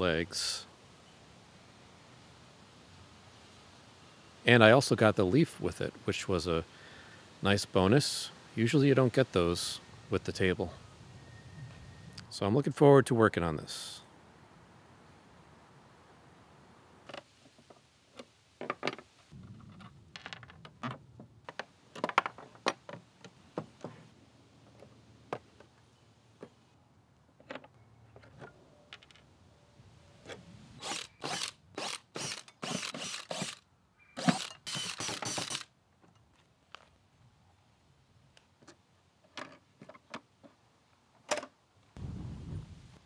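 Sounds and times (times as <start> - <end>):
cordless drill-driver bursts: 30.8 - 33.6, 34.2 - 35.7
screws handled on wood: 34.2 - 36.2.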